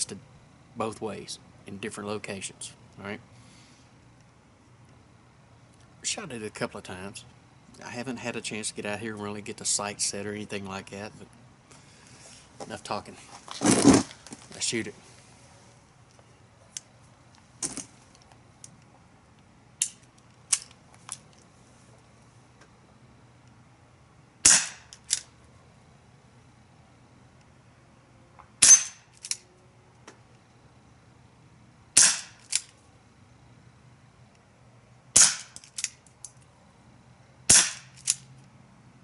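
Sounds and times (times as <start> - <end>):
air pistol shots popping: 24.4 - 25.2, 28.6 - 29.1, 32.0 - 32.6, 35.2 - 35.7, 37.5 - 38.1.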